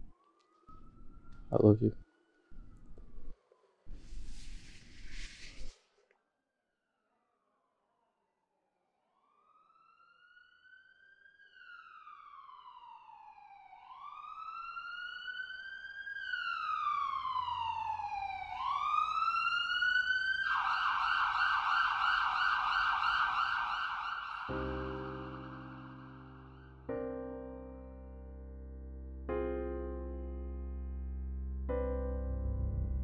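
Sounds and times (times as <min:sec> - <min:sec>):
emergency siren wailing and yelping: 0:09.2 - 0:26.9
piano music: 0:24.5 - 0:33.0.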